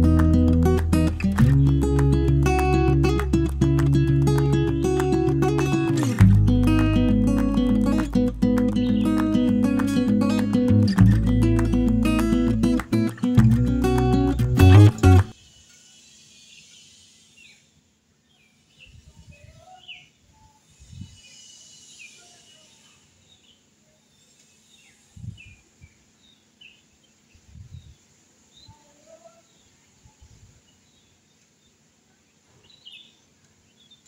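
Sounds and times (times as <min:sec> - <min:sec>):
faint bird chirps: 0:15.4 - 0:34.0.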